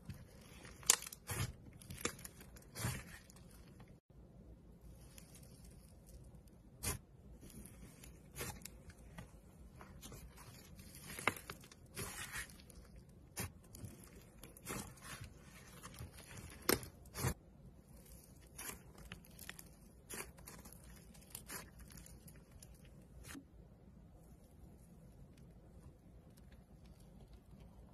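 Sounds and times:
slime crackling and squelching: 0.0s - 4.1s, 4.8s - 23.4s, 24.2s - 27.9s.

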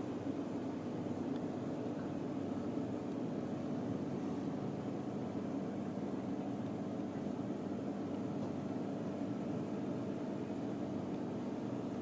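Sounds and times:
low mechanical hum: 0.0s - 12.0s
faint high ticks: 5.8s - 7.3s.

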